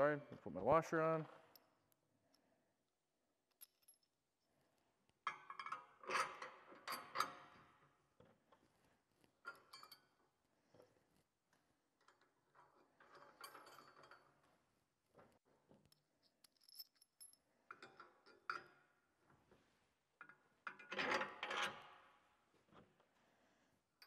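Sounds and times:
bolts and washers clinking: 3.4s - 4.2s, 5.3s - 8.6s, 9.3s - 10.2s, 12.0s - 19.4s, 20.2s - 22.0s.

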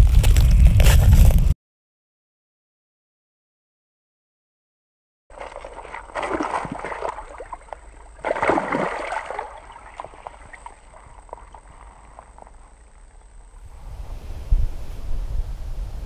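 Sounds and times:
water splashing: 5.3s - 12.8s.

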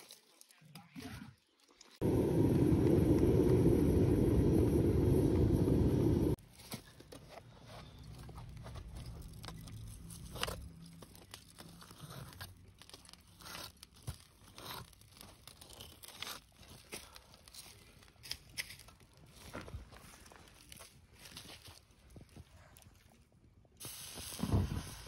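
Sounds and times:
low steady hum: 2.0s - 6.4s.

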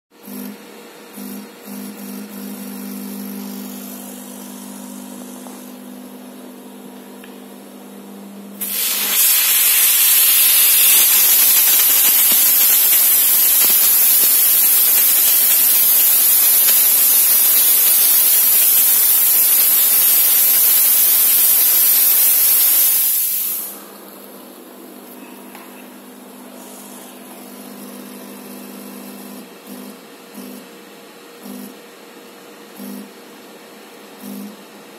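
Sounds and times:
steam spray gun hissing: 8.6s - 23.8s.

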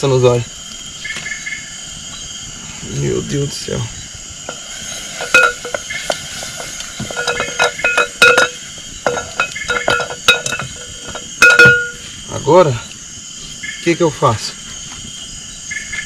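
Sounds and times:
crickets chirping: 0.0s - 16.0s
metal utensil clinking on pot: 5.2s - 12.0s.

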